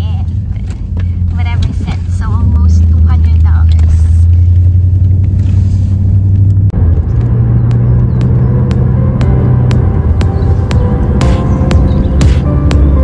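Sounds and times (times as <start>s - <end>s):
car cabin road rumble: 0.0s - 13.0s
music with ticking beat: 7.2s - 13.0s.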